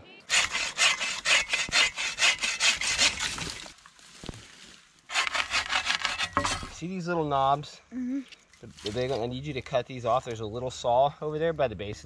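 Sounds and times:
bow saw cutting branch: 0.3s - 3.7s, 5.1s - 6.8s.

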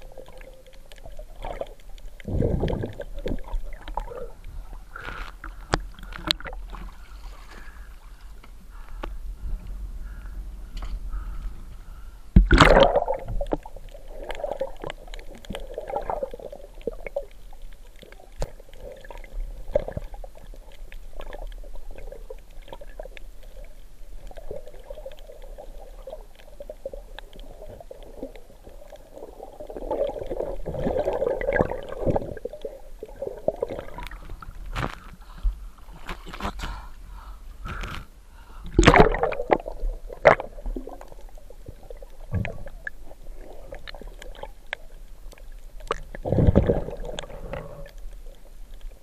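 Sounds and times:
underwater gurgling and sloshing: 0.0s - 49.0s
loud splash: 12.4s - 13.2s.

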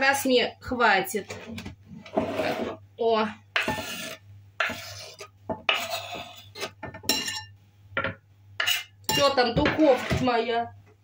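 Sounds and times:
cutlery clinking against dishes: 7.0s - 7.5s.

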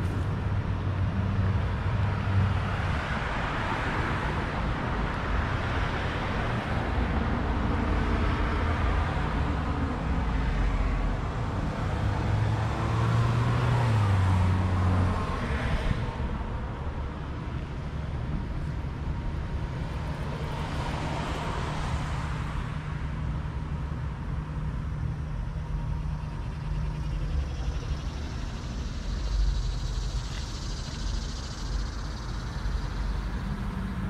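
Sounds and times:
cars driving by: 0.0s - 34.0s.

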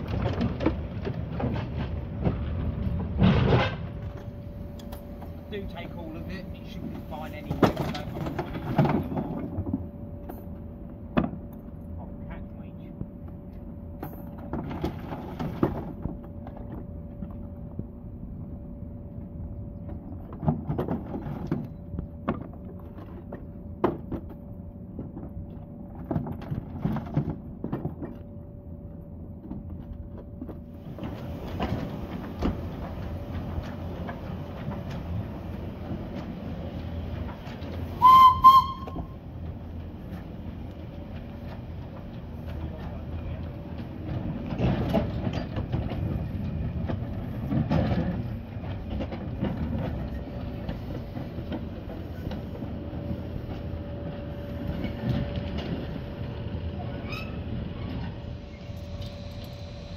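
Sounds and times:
steam locomotive rushing: 0.0s - 11.1s, 30.6s - 59.9s
steam whistle blasts: 38.0s - 39.2s.

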